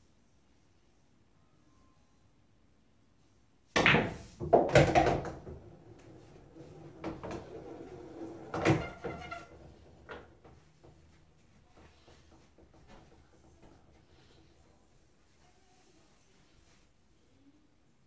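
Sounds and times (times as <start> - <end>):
pool balls clacking: 3.8 - 11.0.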